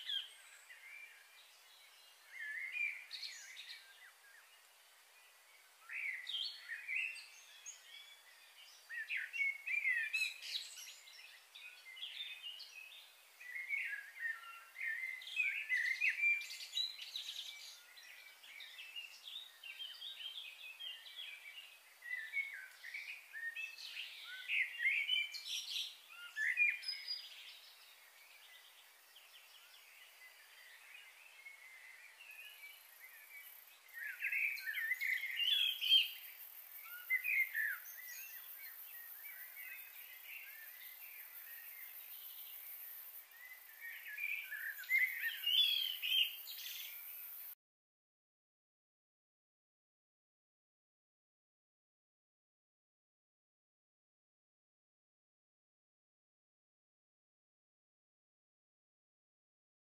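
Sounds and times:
birds chirping and singing: 5.8 - 47.6.

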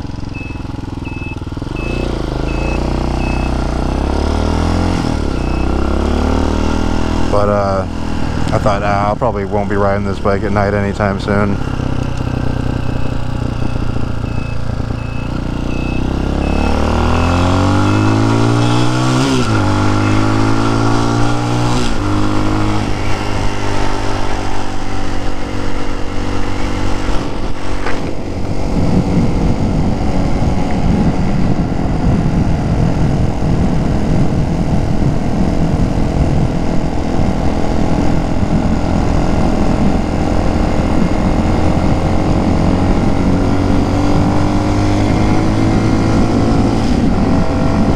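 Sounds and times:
motorcycle engine accelerating: 0.0 - 47.9
wind rushing over microphone: 15.8 - 47.9.

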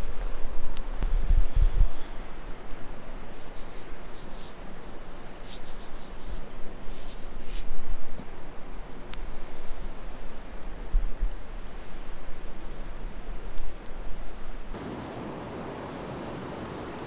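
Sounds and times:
rubbing and handling noises: 3.3 - 7.8
river water rushing: 14.7 - 17.0.

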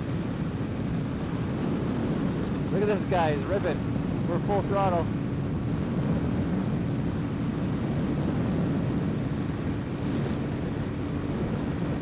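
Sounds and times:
motorcycle engine at full throttle: 0.0 - 12.0
wind rushing over microphone: 0.0 - 12.0.

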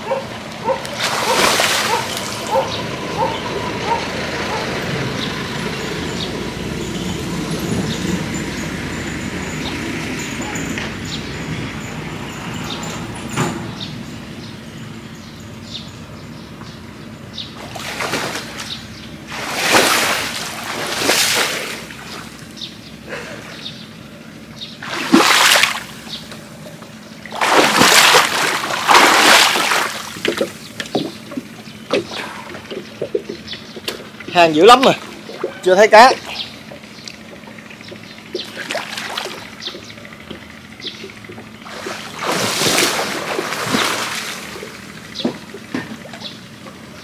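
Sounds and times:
water sloshing and splashing: 0.0 - 3.4, 17.6 - 22.6, 24.8 - 46.8.

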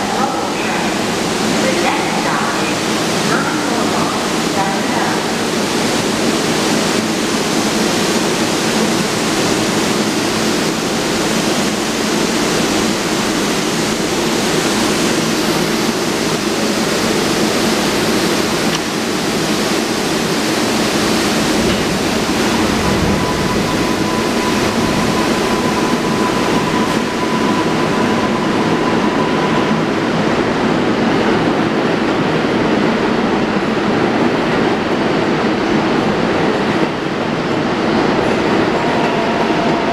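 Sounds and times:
subway train equipment noise: 0.0 - 39.9
train rumble moving off: 0.0 - 39.9
steady high whine: 5.2 - 32.1.

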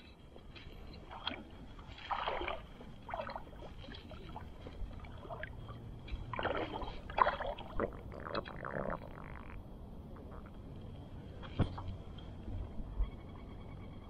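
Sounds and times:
small waves lapping and splashing: 0.0 - 8.6.

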